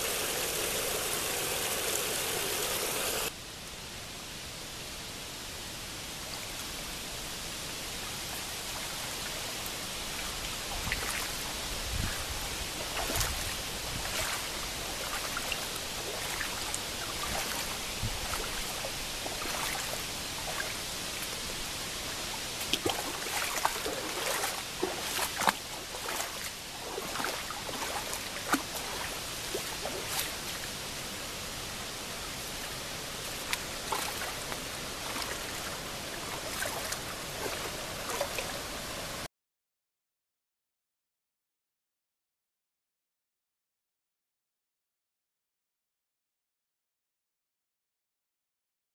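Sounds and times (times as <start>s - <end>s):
creek water rushing: 0.0s - 3.3s, 7.0s - 39.2s
small water splashes: 8.7s - 30.8s, 32.7s - 39.2s.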